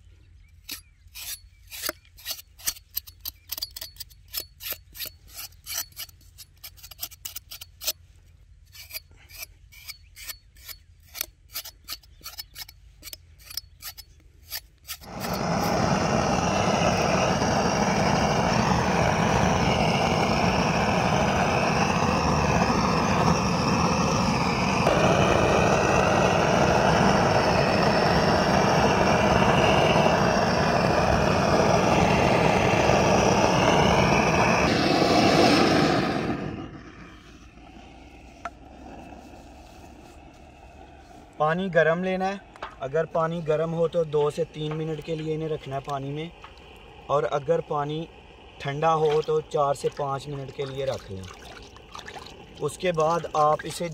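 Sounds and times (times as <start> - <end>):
scraping strokes on meat: 0.6 - 15.6
blowtorch hissing: 15.0 - 53.9.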